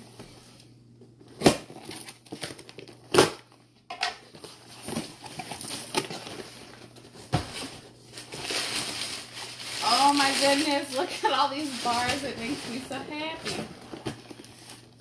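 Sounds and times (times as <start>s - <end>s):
cardboard box contents rustling: 4.3s - 15.0s.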